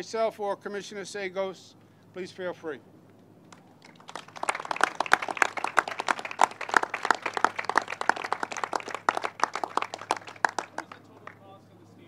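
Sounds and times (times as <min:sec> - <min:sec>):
group of people clapping: 0:03.5 - 0:11.5.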